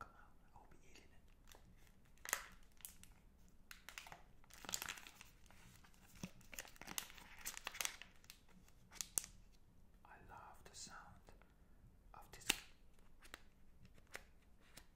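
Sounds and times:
plastic wrappers crinkling: 1.4 - 9.4.

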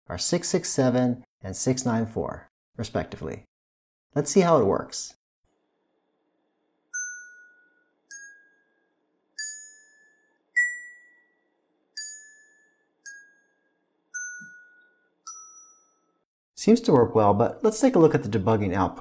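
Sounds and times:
chime-like notes from small speaker: 6.9 - 16.2.

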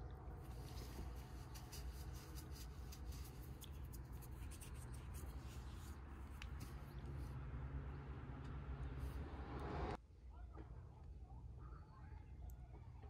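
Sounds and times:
scratching: 0.3 - 7.7.

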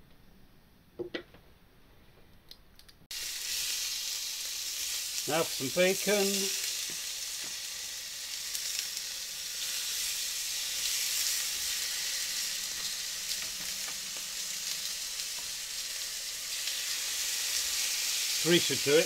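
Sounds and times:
sausages and bacon sizzling: 3.1 - 19.0.

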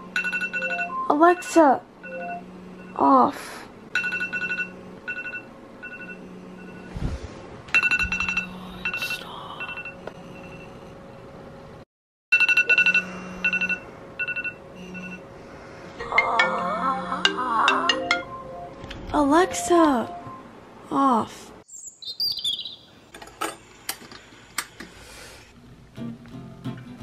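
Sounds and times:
phone alarm beeping: 0.0 - 3.0, 4.0 - 6.9, 7.8 - 10.8, 12.4 - 15.2, 17.9 - 20.5.

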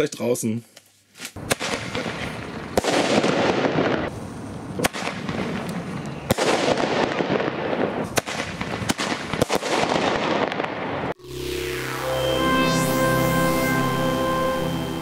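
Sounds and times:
fireworks bangs: 1.4 - 11.2.

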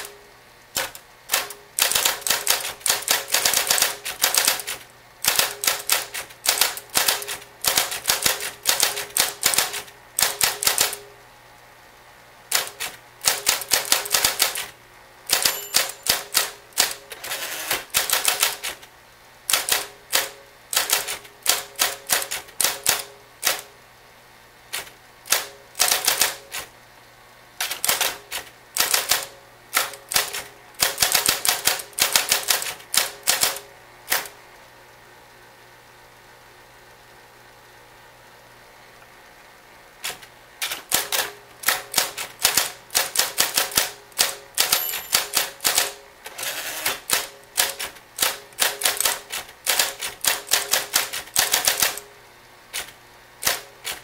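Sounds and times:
typewriter motor humming: 0.7 - 11.1, 12.5 - 18.9, 19.5 - 23.7, 24.7 - 26.7, 27.6 - 34.4, 40.0 - 52.1, 52.7 - 54.0
typewriter key strikes: 0.8 - 11.0, 12.5 - 14.7, 15.3 - 18.8, 19.5 - 23.7, 24.8 - 26.7, 27.6 - 34.3, 40.0 - 46.0, 46.8 - 52.1, 52.8 - 54.0.

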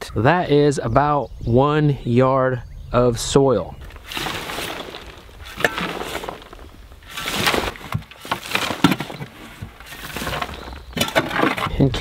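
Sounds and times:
falling soil rushing: 3.8 - 11.7
shovel blade scraping: 3.9 - 11.7.

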